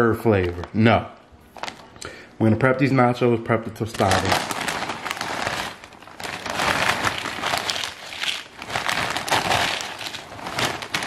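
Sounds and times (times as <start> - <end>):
plastic bag crinkling: 1.5 - 2.0, 3.9 - 11.0.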